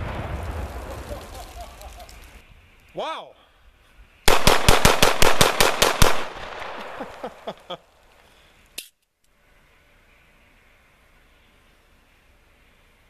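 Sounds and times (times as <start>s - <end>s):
pistol shots in rapid succession: 4.3s - 6.8s.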